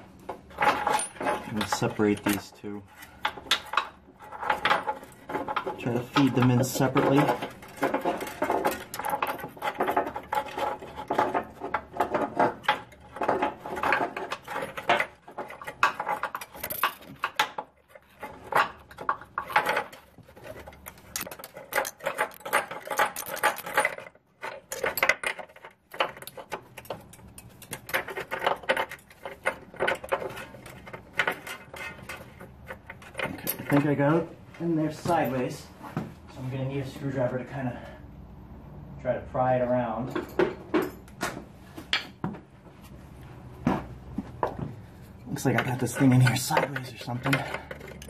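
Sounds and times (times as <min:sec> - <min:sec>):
bolts clinking against metal: 0:00.3 - 0:35.6.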